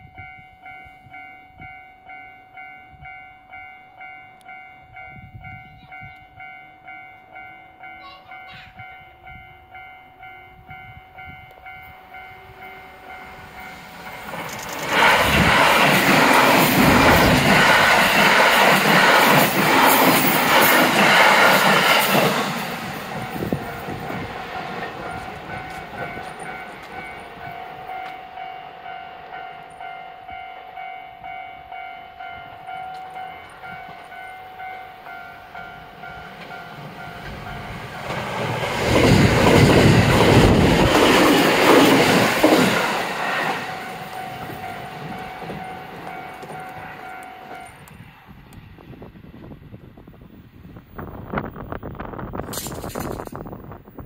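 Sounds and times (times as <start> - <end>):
train wheel and rail noise: 0.0 - 54.0.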